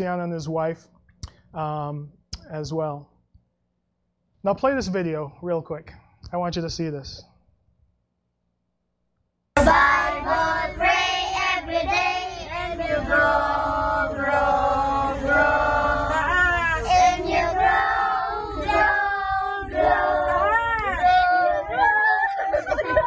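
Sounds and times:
children singing together: 9.6s - 23.0s.

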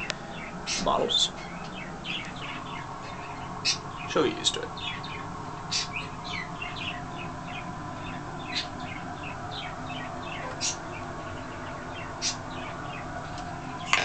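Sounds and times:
steady low hum: 0.0s - 14.0s
toucan chirping: 4.8s - 13.0s.

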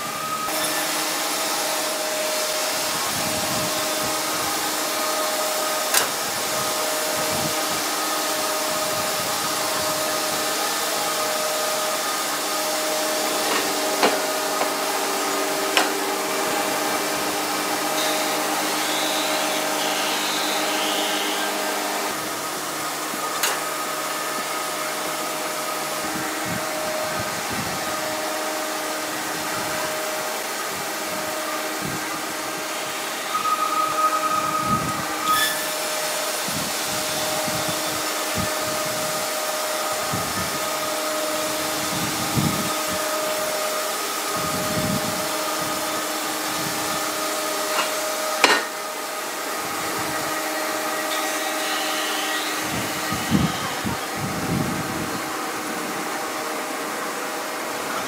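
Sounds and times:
sawmill machinery humming: 0.0s - 58.0s
sharp knocks: 47.8s - 48.8s.

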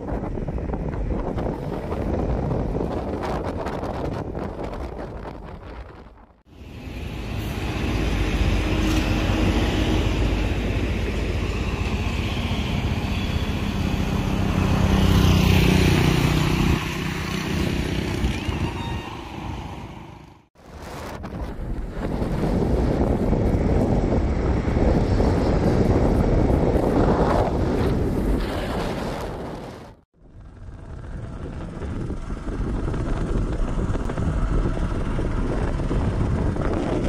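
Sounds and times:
wind on microphone: 0.0s - 20.0s, 20.6s - 37.0s
motorcycle running: 12.8s - 18.7s, 30.2s - 37.0s.

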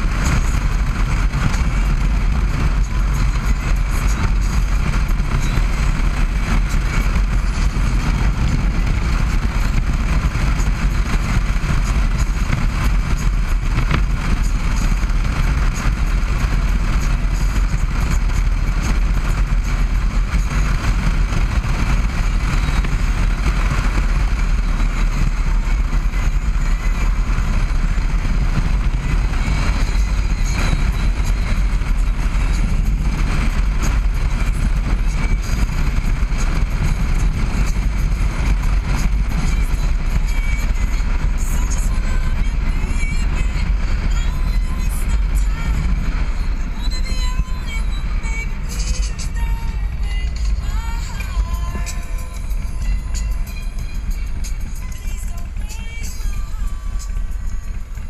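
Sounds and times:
motorcycle engine cruising: 0.0s - 58.0s
wind rumble on microphone: 0.0s - 58.0s.

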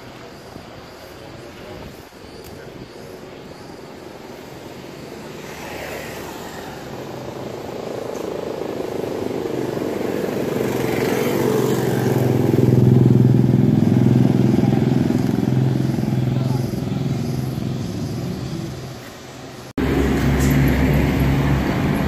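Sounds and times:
motorcycle engine approaching: 5.1s - 19.0s, 19.8s - 22.0s.

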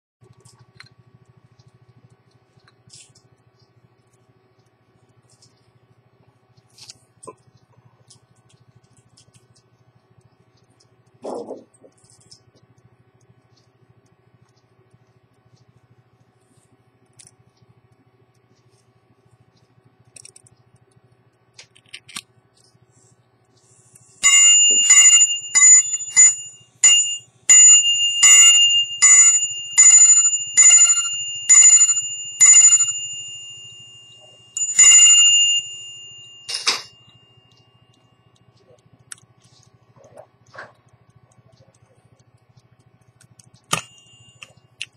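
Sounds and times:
watch mechanism clicks: 17.0s - 22.8s
hammer striking watch bell: 24.2s - 37.5s, 43.7s - 44.6s.

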